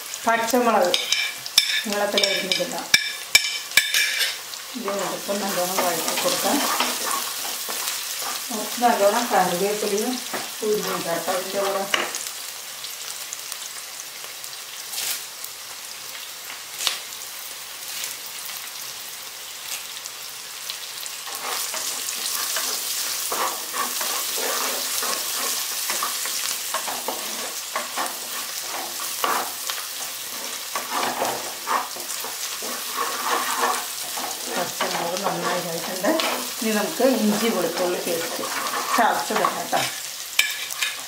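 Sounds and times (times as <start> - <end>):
onions sizzling in oil: 0.0 - 41.0
spatula scraping pot: 0.9 - 9.6, 21.2 - 41.0.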